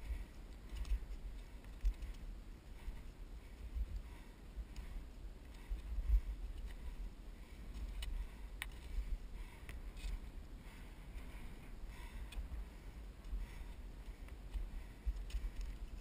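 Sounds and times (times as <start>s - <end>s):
wind on microphone: 5.7s - 7.2s.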